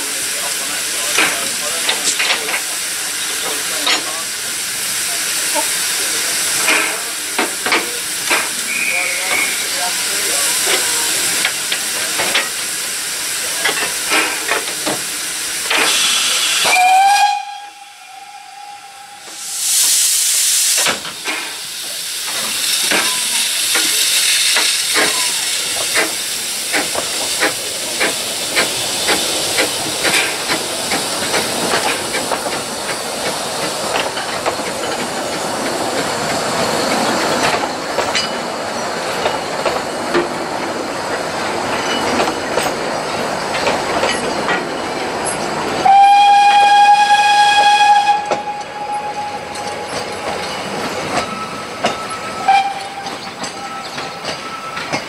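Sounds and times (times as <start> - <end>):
steam hissing: 0.0 - 55.0
steam whistle blast: 15.9 - 20.0, 45.8 - 49.7, 51.4 - 53.2
wheels clicking over rail joints: 24.6 - 45.6, 49.5 - 55.0.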